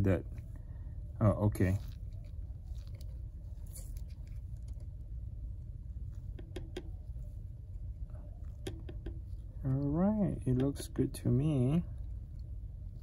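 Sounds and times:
low steady hum: 0.0 - 13.0
fingertips tapping touchscreen: 6.3 - 7.1, 8.5 - 9.4.

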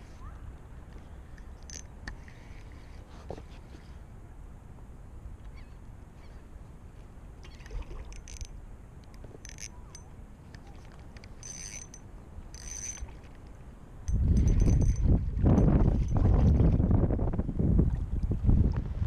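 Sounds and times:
fishing reel whirring: 7.6 - 13.4, 14.1 - 15.8
wind rumble on microphone: 14.0 - 19.0.

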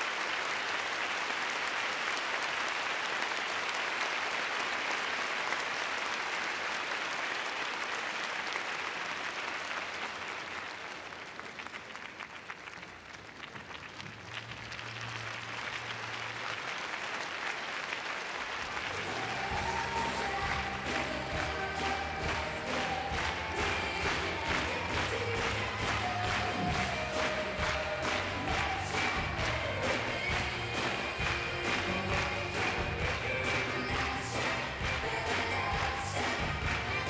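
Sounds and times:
audience applauding: 0.0 - 37.0
music: 18.8 - 37.0.

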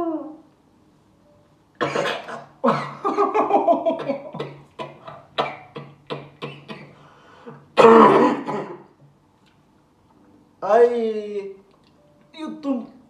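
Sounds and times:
people laughing: 2.7 - 4.4.

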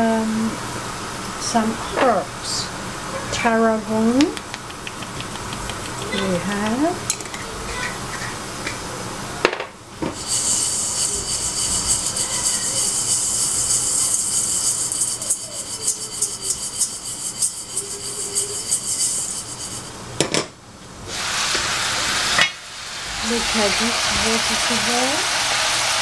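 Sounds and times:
grains rattling in a shaken pan: 10.2 - 19.9.

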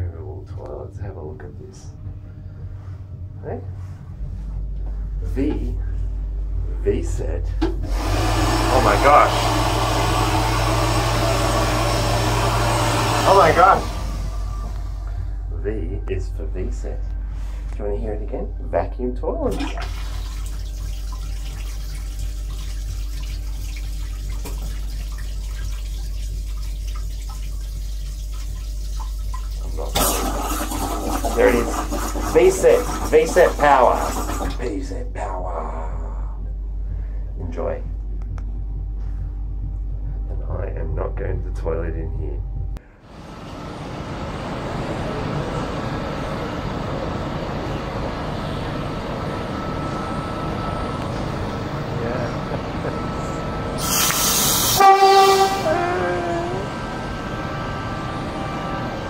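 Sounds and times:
low hum: 0.0 - 53.8
train mechanical hum and hiss: 0.6 - 18.7, 42.8 - 59.0
toilet rinse water swirling: 7.8 - 15.2, 19.4 - 34.9.

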